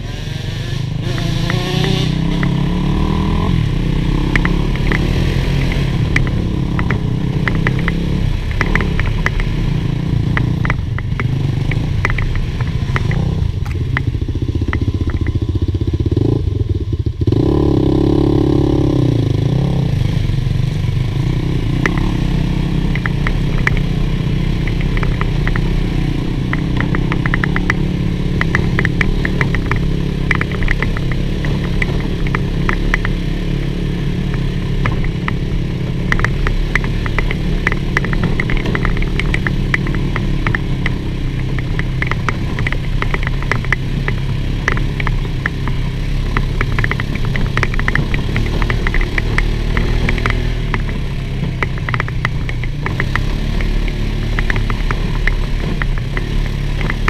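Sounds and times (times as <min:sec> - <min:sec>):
rattles over rocks: 0:34.8 - 0:57.0.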